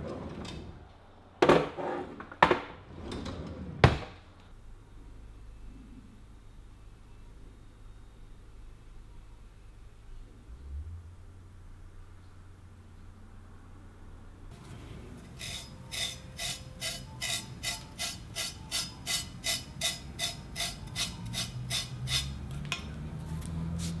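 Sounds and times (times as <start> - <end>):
knife blade scraping hair: 15.3 - 22.4.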